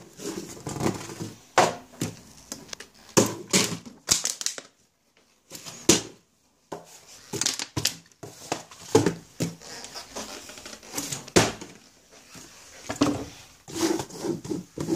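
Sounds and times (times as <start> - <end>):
plastic crinkling: 4.0 - 4.8.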